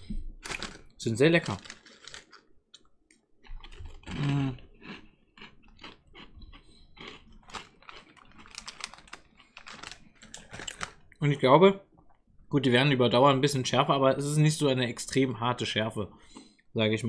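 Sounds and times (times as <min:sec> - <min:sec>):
plastic crisp packet crinkling: 0:00.4 - 0:02.9, 0:07.0 - 0:11.2.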